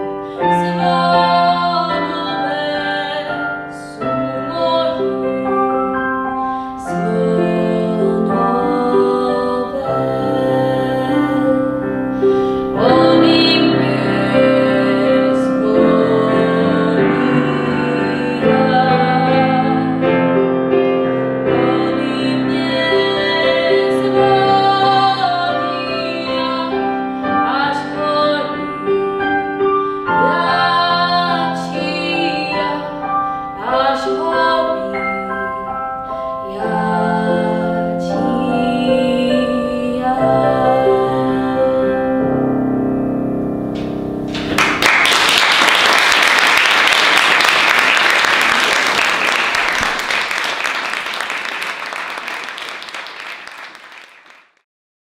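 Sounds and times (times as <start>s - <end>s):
piano accompaniment: 0.0s - 53.8s
woman singing: 0.2s - 6.1s, 6.8s - 20.4s, 21.4s - 35.8s, 36.4s - 42.3s
audience applause: 44.3s - 54.6s.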